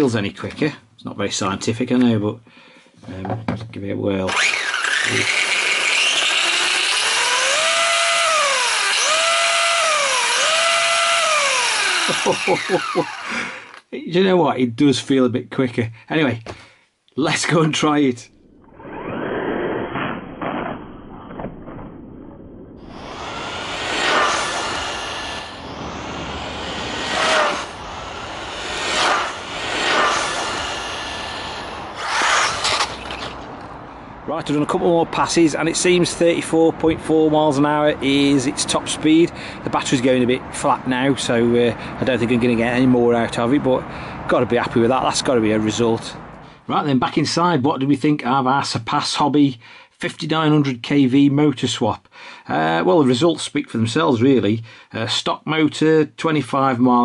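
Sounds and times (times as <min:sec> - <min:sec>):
drivetrain gear noise: 0:04.3 - 0:13.8
high electric motor whine: 0:04.3 - 0:13.8, 0:22.8 - 0:33.5.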